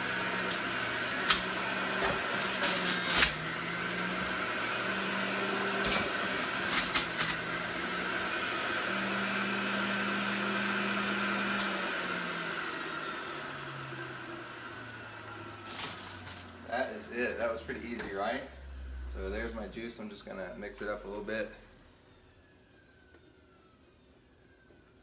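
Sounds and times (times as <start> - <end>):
juicer motor hum: 0.0 - 19.7.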